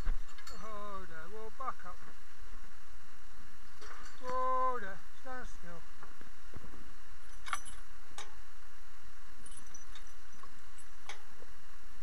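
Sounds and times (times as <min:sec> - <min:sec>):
metal harness gear clinking: 0:00.0 - 0:01.0, 0:03.7 - 0:04.5, 0:07.2 - 0:08.4, 0:09.4 - 0:11.3
steady low rumble: 0:00.0 - 0:12.0.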